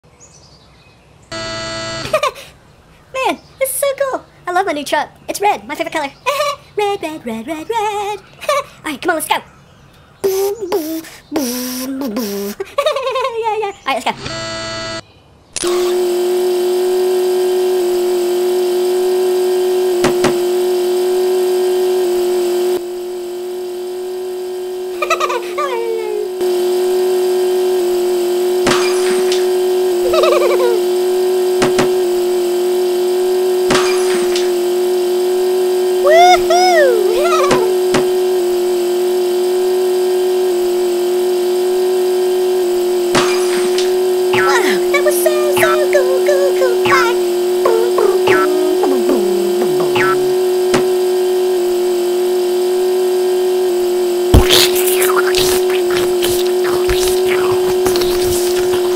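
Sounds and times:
truck engine hum: 1.3 - 2.9, 16.3 - 58.9.

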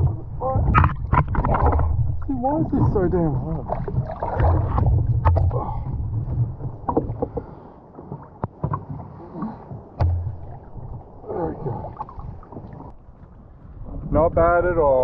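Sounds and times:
water slopping against hull: 0.0 - 14.2
wind gusts on microphone: 10.4 - 15.0.

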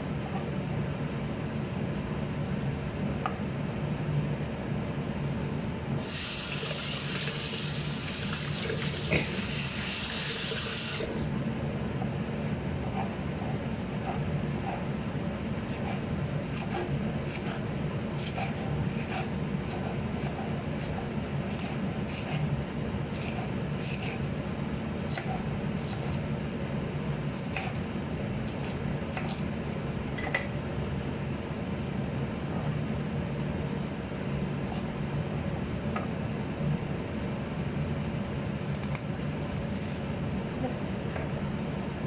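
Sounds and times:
steady low hum: 0.0 - 42.0
knife slicing lettuce: 15.6 - 22.4, 23.1 - 24.3, 25.0 - 26.2, 27.2 - 27.8, 38.4 - 40.1.

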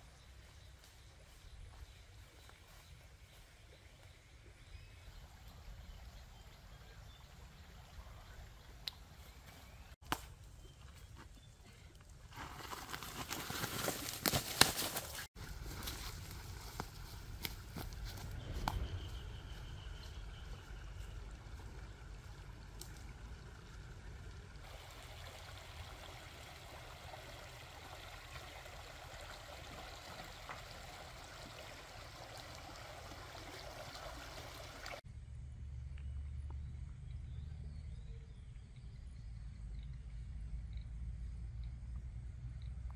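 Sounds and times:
footsteps on dry leaves: 12.3 - 20.8
stream rushing over stones: 24.6 - 35.0.

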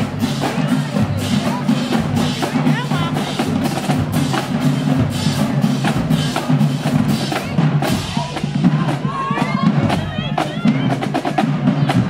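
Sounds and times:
bass drums booming: 0.0 - 12.0.

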